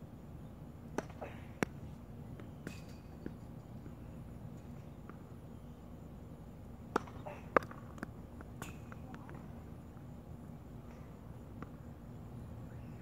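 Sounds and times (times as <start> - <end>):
racket hitting tennis ball: 1.0 - 1.8, 6.9 - 9.3
ball bouncing on hard court: 6.9 - 9.4.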